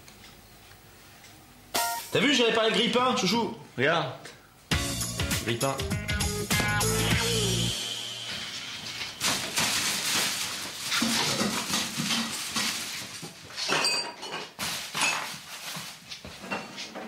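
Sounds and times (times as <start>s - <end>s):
packets rustling: 8.6s - 13.6s
dishes clinking: 13.6s - 15.4s.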